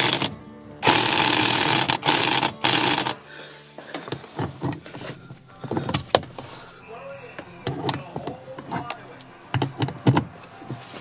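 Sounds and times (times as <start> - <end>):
electric impact wrench hammering: 0.0 - 3.2
tool clicks and knocks: 9.5 - 10.3.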